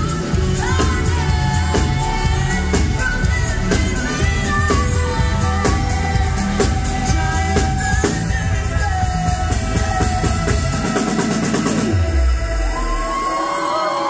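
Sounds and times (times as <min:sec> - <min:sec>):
woman singing: 0:00.0 - 0:11.2
heavy bass: 0:00.0 - 0:13.8
live pop-rock band: 0:00.0 - 0:14.0.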